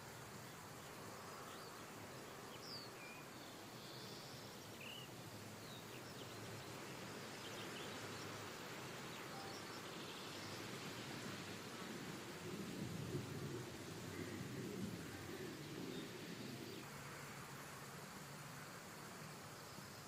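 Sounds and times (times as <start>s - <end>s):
steady background hiss: 0.0s - 20.0s
bird chirps: 9.2s - 10.5s.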